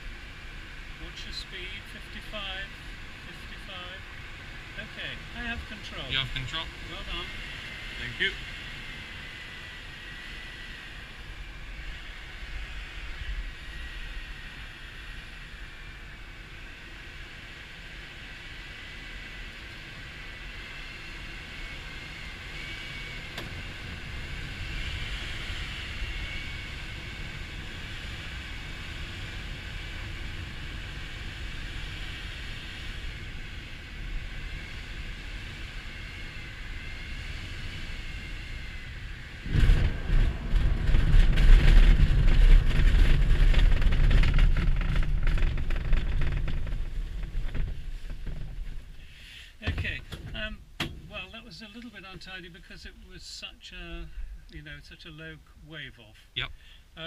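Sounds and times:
air rushing over canopy: 39.3s - 49.7s.

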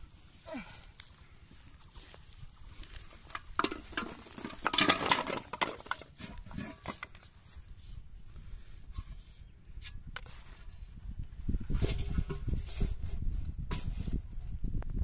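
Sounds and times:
plastic bottles clattering: 3.0s - 7.2s.

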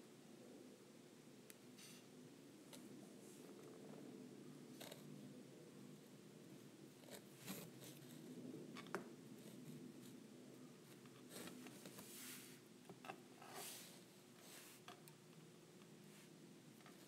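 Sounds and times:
faint steady hum: 0.0s - 17.0s
soft brushing rustles: 9.3s - 12.7s, 13.4s - 14.9s.

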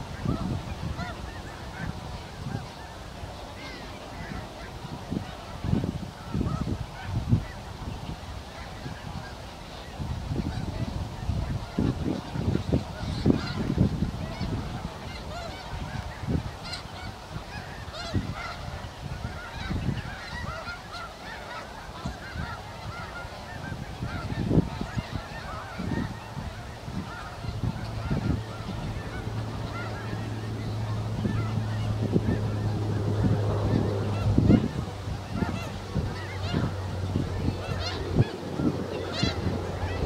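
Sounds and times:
geese honking: 0.0s - 40.0s
wind rumble on microphone: 0.0s - 40.0s
steady low hum: 9.7s - 40.0s.

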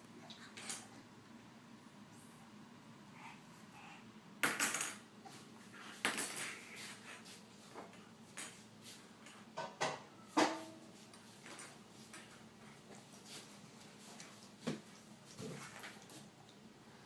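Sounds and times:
plastic toys clattering on tile: 4.4s - 5.0s, 6.0s - 6.6s.

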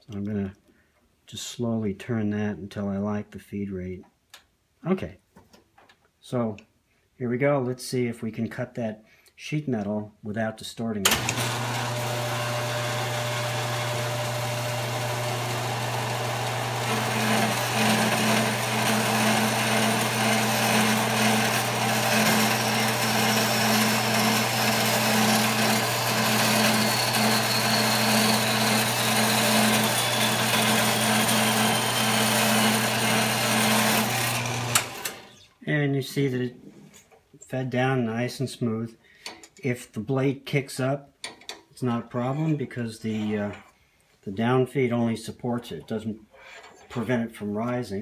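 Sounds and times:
bandsaw blade cutting sheet metal: 11.1s - 35.4s
bandsaw motor hum: 11.1s - 35.4s.

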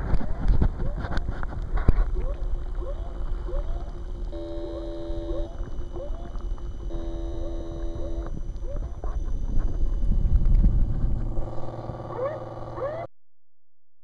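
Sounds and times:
low rumble: 0.0s - 13.0s
ship whooper alarm: 2.8s - 10.0s
ship horn blasts: 4.3s - 5.9s, 6.8s - 8.4s.

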